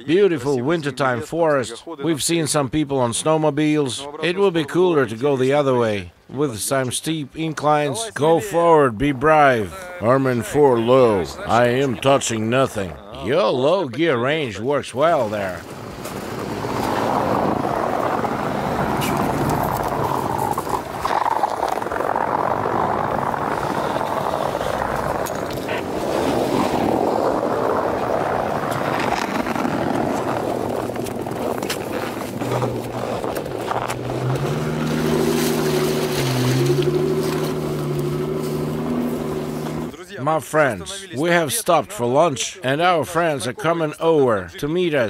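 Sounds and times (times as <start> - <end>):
off-road engines under load: 0.0 - 45.0
tyres crunching through snow: 15.0 - 40.0.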